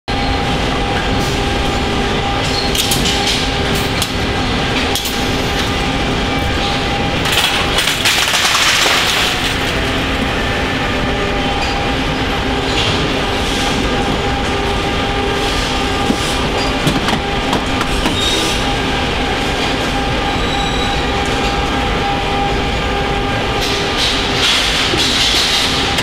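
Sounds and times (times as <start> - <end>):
machinery hum: 0.1 - 26.0.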